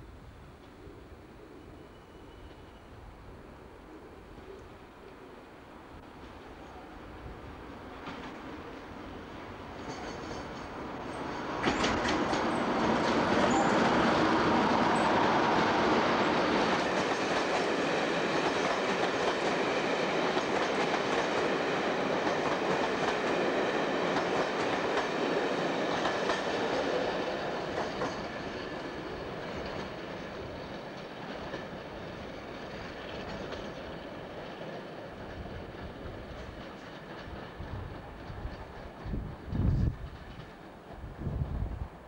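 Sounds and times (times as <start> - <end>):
passenger train passing: 0.0 - 42.0
wheels clattering over rails: 9.8 - 15.7.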